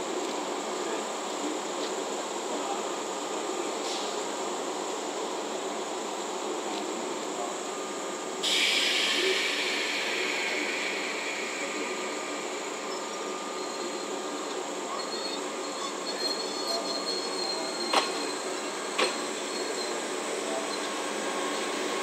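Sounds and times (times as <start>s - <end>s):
train background hum: 0.1s - 16.3s
loud hiss of air brakes: 3.7s - 4.5s, 7.8s - 22.0s.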